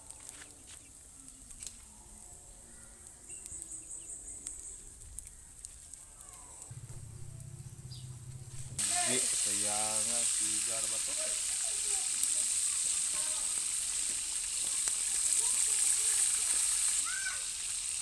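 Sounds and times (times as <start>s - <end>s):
faint crackles: 0.0s - 18.0s
low buzzing hum: 6.7s - 8.8s
pulsed chirping: 6.7s - 8.8s.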